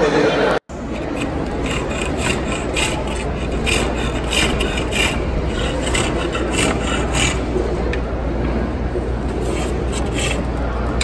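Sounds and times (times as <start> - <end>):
lathe tool scraping wood: 0.8 - 7.6, 9.4 - 10.6.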